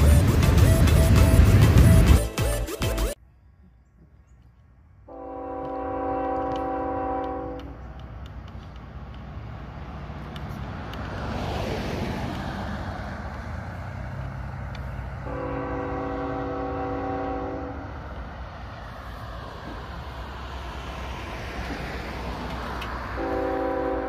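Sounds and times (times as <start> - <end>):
locomotive air horn blast: 0.0 - 2.5, 5.1 - 7.8, 15.2 - 18.0, 23.1 - 24.0
truck passing on road: 0.0 - 3.3, 4.8 - 24.0
diesel train rumble: 0.0 - 24.0.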